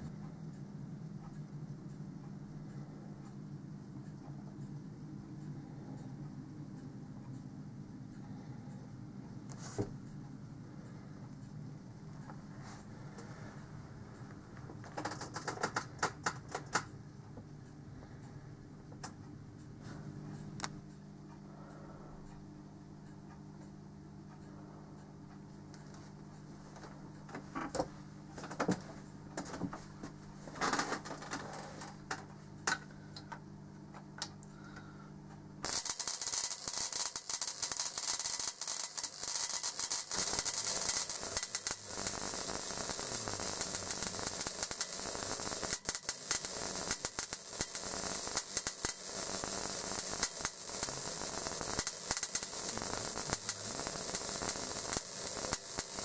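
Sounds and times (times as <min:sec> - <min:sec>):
low electrical hum: 0:00.0 - 0:56.0
electrical discharge sizzle: 0:35.6 - 0:56.0.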